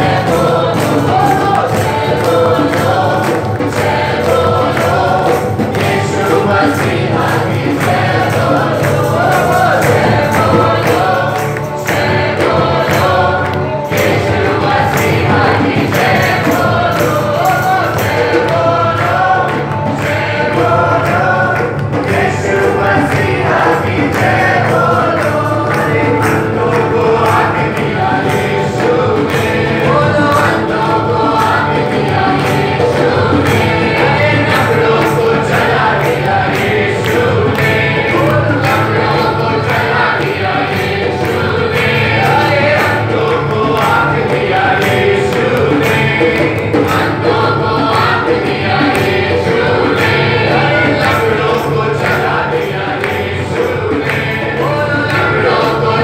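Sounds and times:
acoustic guitar: 0:00.0 - 0:56.0
group singing: 0:00.0 - 0:56.0
keyboard: 0:00.0 - 0:56.0.

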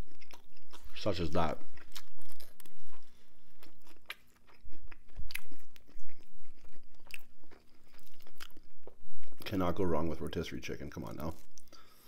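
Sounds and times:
person chewing crunchy food: 0:00.0 - 0:09.5.

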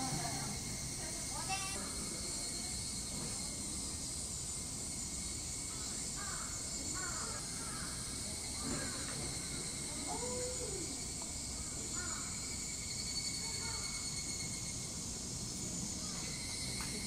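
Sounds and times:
cicadas droning: 0:00.0 - 0:17.0
crows cawing: 0:06.2 - 0:08.0, 0:12.0 - 0:12.4.

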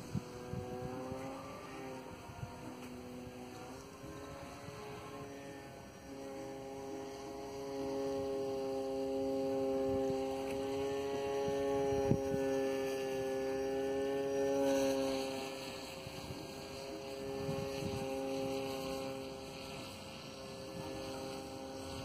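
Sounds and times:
model plane motor droning: 0:00.0 - 0:22.0.

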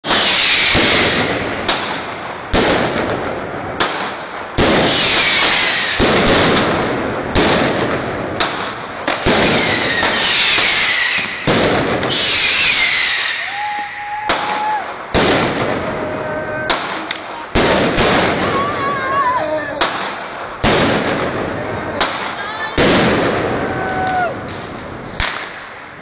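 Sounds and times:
falling firework whistles: 0:00.0 - 0:01.4, 0:04.8 - 0:06.2, 0:09.4 - 0:15.8
fireworks banging with echo: 0:00.0 - 0:26.0.

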